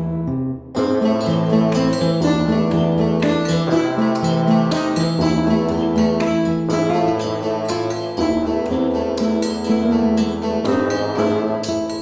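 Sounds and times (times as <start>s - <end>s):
instrumental music with plucked strings: 0.0s - 12.0s.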